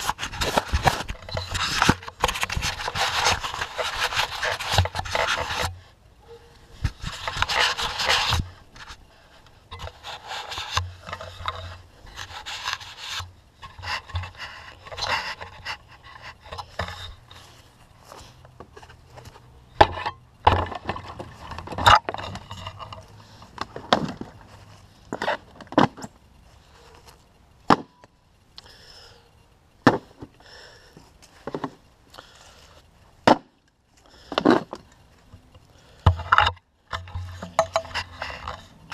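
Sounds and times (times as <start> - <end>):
rubbing and scraping on camera: 0.0 - 27.2, 36.1 - 38.9.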